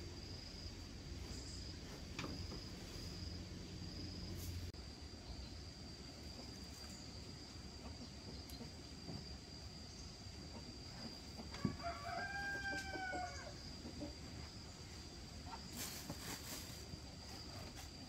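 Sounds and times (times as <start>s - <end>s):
rooster crowing: 11.5s - 13.7s.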